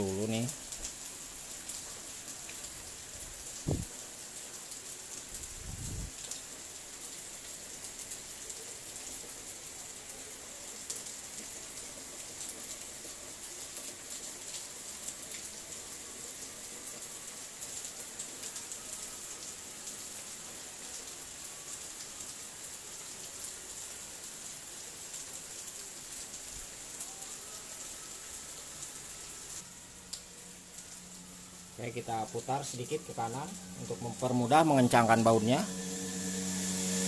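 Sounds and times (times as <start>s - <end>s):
steady high hiss: 28.4s - 37.0s.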